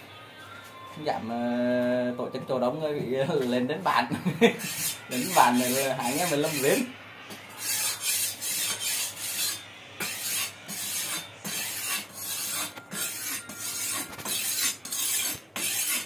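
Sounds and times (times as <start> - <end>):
rasping rubbing strokes: 4.6 - 6.9, 7.5 - 16.0.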